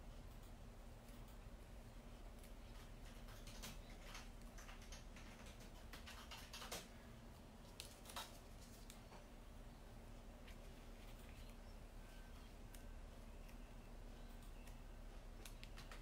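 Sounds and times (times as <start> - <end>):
paper and card rustling: 7.6 - 9.2.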